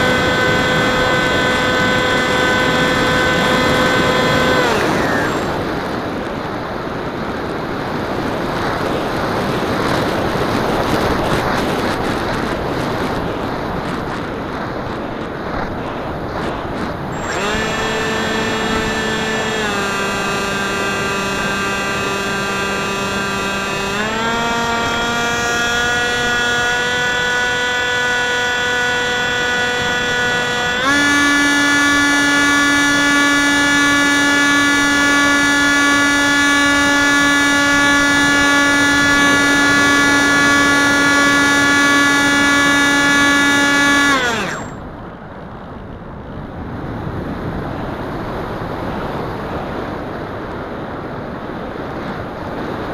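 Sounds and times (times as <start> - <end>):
electric motor whine: 0.0 - 6.1, 16.4 - 44.8
wind rushing over microphone: 0.0 - 31.0.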